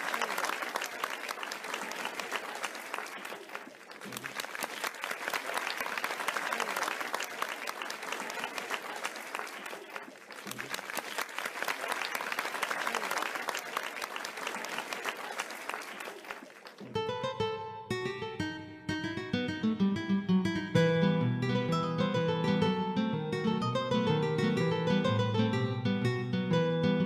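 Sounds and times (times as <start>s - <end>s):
audience applauding: 0.0s - 17.5s.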